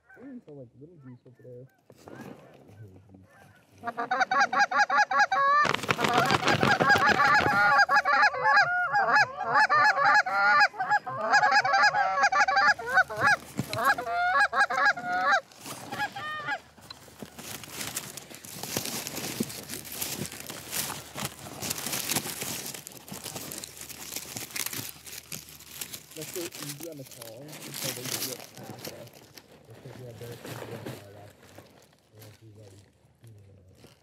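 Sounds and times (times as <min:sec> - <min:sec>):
dry corn stalks crackling: 0:01.9 - 0:08.8, 0:09.6 - 0:34.0
geese honking: 0:03.3 - 0:16.9.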